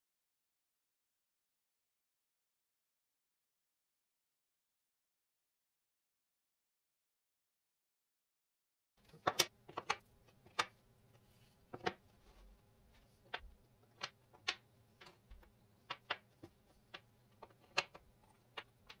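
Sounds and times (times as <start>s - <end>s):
wooden puzzle pieces clacking: 9.0s - 19.0s.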